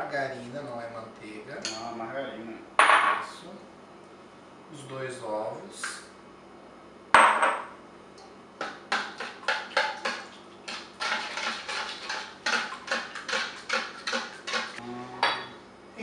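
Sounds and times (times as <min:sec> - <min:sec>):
batter being mixed in bowl: 0:08.6 - 0:14.8.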